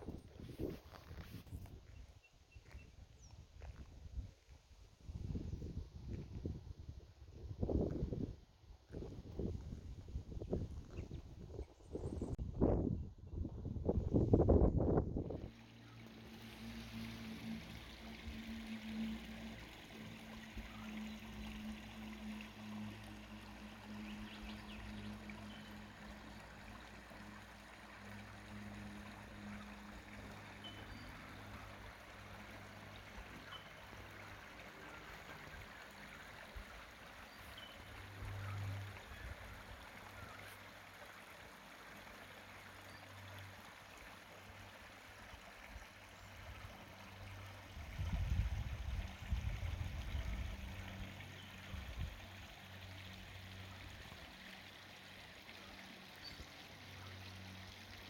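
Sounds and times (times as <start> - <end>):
creek trickling over rocks: 0.0 - 58.0
low hum: 11.3 - 40.4.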